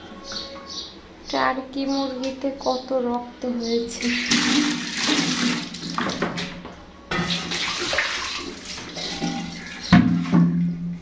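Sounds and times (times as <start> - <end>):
water splashing on tiled floor: 4.0 - 6.6, 7.3 - 10.6.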